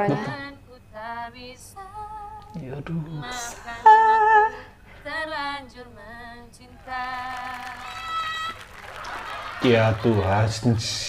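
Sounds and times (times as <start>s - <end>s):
woman singing slow melody: 0.0s - 8.2s.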